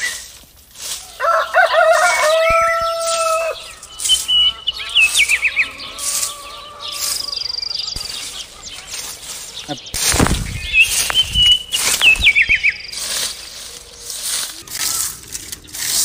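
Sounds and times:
small birds chirping: 0:00.0 - 0:16.0
rooster crowing: 0:01.1 - 0:07.8.

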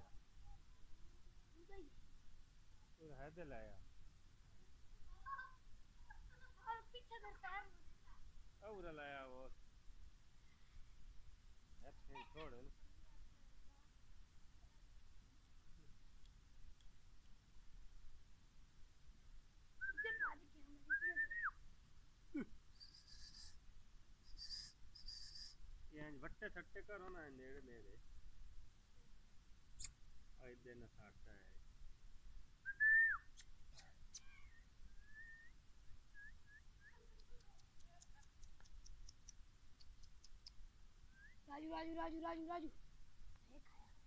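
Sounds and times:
faint high ticks: 0:16.2 - 0:17.4, 0:36.9 - 0:40.7
faint high-pitched chirping: 0:19.8 - 0:21.6, 0:22.3 - 0:25.7, 0:29.8 - 0:30.0, 0:32.6 - 0:42.7
person whistling: 0:22.8 - 0:23.5, 0:32.7 - 0:33.2
faint short rising whistles: 0:22.8 - 0:23.6, 0:24.3 - 0:25.6, 0:34.4 - 0:37.0.

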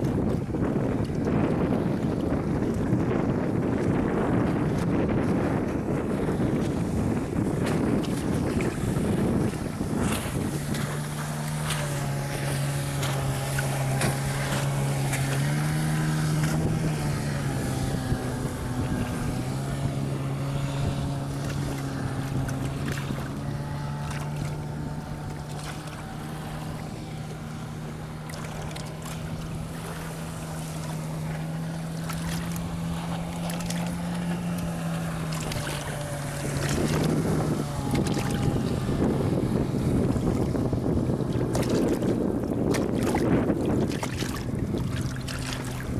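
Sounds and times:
outboard motor running: 0:00.0 - 0:45.9
water splashing against hull: 0:00.0 - 0:45.9
wind buffeting microphone: 0:00.0 - 0:45.9.

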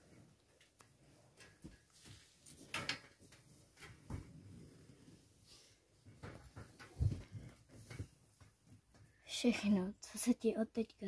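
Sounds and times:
bedding rustling: 0:00.0 - 0:08.9.

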